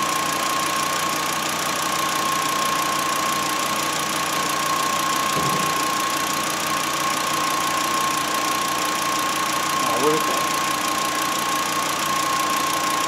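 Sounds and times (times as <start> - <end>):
car engine idling: 0.0 - 13.0
soft low bump: 5.3 - 5.9.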